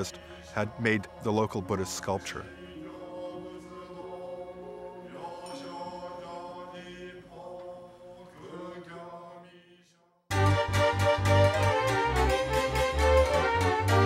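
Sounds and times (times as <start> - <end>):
voices chanting long notes: 0.0 - 9.2, 10.3 - 14.0
loud instrumental music: 10.3 - 14.0.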